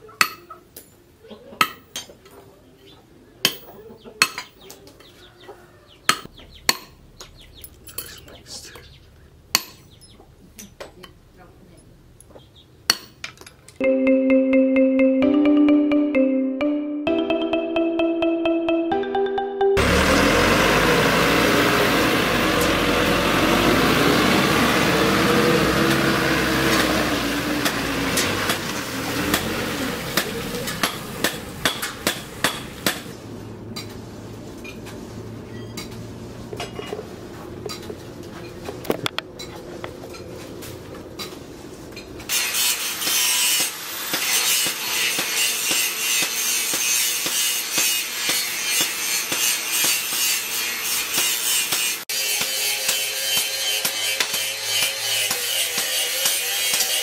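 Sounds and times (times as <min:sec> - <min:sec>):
truck engine running: 0:19.8 - 0:34.4.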